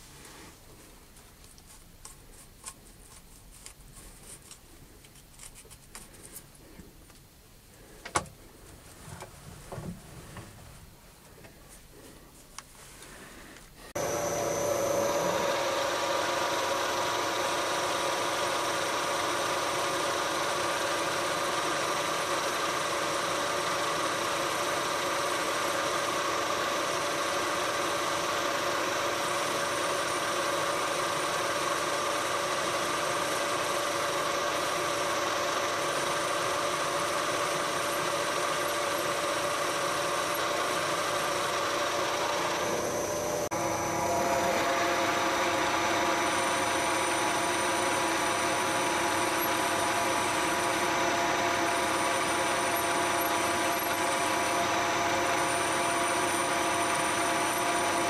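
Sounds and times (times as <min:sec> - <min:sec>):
metal lathe humming: 0:13.9 - 0:58.0.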